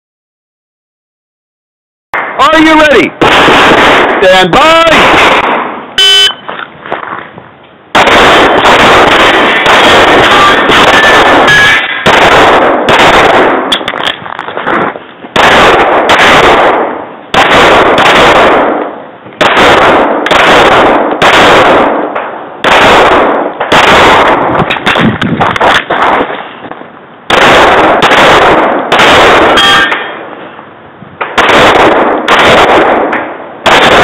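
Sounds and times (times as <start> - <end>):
pistol firing rapid shots: 3.2 - 5.8, 7.9 - 14.0, 15.4 - 26.4, 27.3 - 29.9, 31.3 - 34.0.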